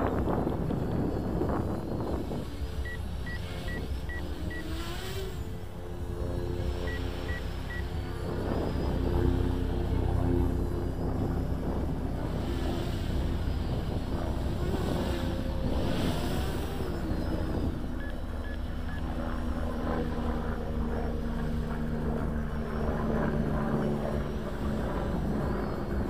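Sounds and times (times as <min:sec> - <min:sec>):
low rumble: 0:00.0 - 0:19.0
quadcopter motors whining: 0:00.0 - 0:26.0.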